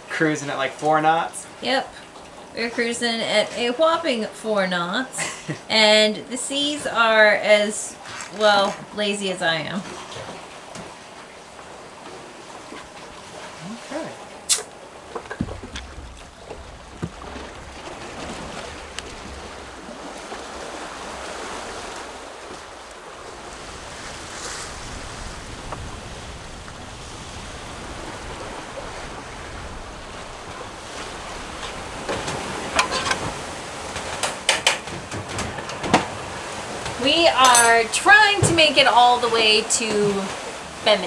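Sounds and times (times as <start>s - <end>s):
sea water rushing past hull: 0.0s - 41.0s
wind buffeting microphone: 15.3s - 34.2s.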